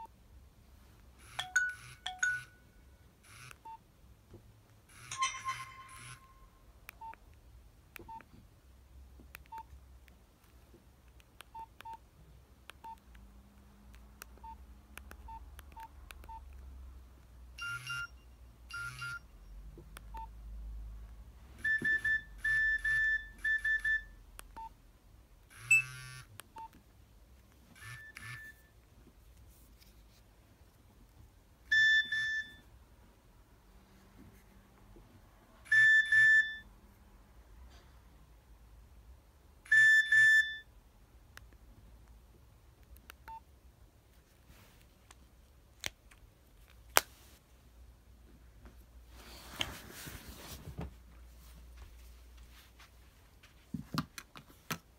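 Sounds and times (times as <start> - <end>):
phone alert beeps: 1.3 - 2.6, 5.0 - 7.2, 17.6 - 19.3, 21.6 - 24.8, 25.6 - 26.8, 31.7 - 32.7, 35.7 - 36.7, 39.7 - 40.7.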